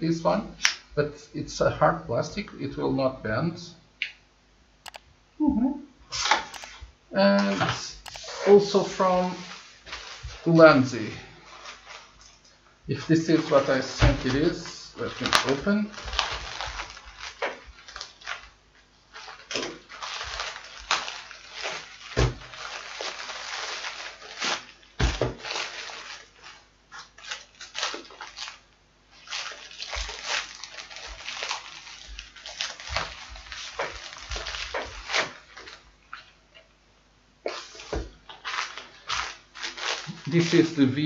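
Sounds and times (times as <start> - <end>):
plastic packaging crinkling: 7.4 - 36.4, 37.5 - 41.0.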